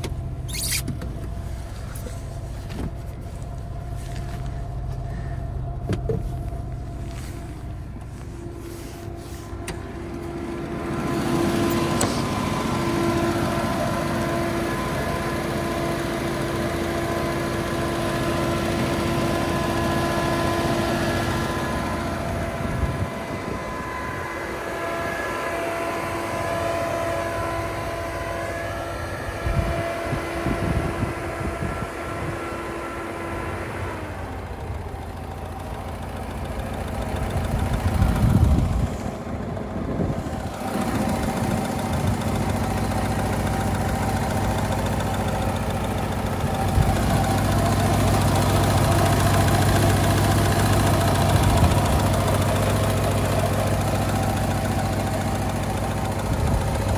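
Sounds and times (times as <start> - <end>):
car engine idling: 0.0 - 56.9
whining tones: 0.0 - 56.9.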